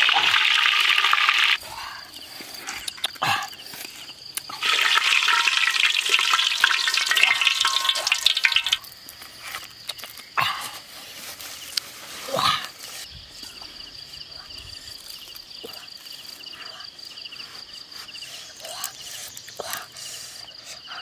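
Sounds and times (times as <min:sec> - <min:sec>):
hot oil sizzling in a wok: 0:00.0 - 0:01.6, 0:04.6 - 0:08.9.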